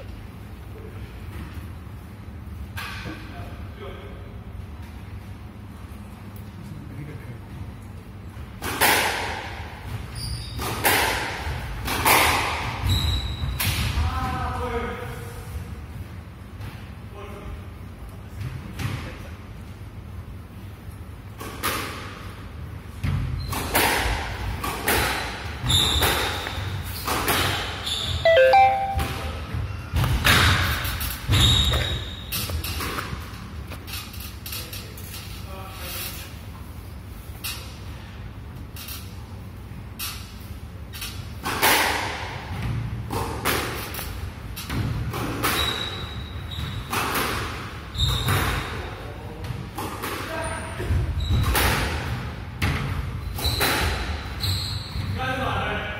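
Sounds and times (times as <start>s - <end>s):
squash ball hitting rackets and walls: 8.4s - 14.5s, 21.3s - 33.9s, 41.1s - 54.4s
sneakers squeaking on wooden floor: 10.1s - 10.6s, 12.8s - 13.6s, 25.6s - 27.0s, 27.8s - 29.8s, 31.3s - 33.1s, 45.4s - 47.0s, 47.9s - 48.7s, 50.5s - 51.5s, 53.2s - 55.2s.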